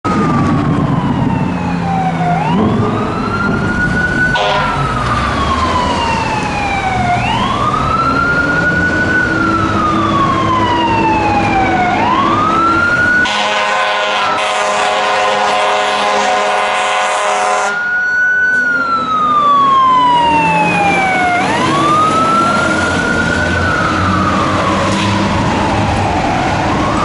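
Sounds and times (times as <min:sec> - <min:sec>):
fire truck siren wailing: 0:00.0 - 0:27.0
truck and traffic rumble: 0:00.0 - 0:27.0
air horn blast: 0:04.3 - 0:04.9, 0:13.2 - 0:17.8.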